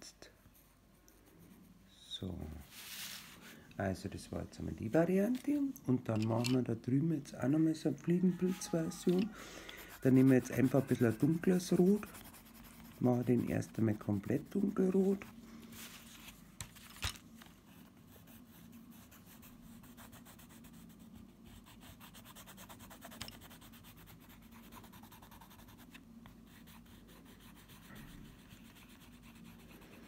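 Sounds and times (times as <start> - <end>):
pencil scratching on wood: 8.2 - 15.2, 17.9 - 30.0.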